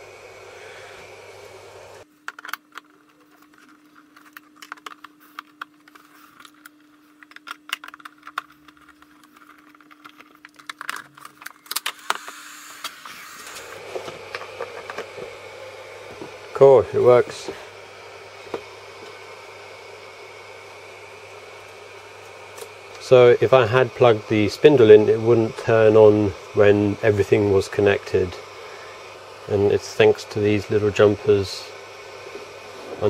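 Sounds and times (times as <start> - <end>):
fan hum: 0.0 - 33.0
wire connectors clicking and rattling: 2.2 - 12.4.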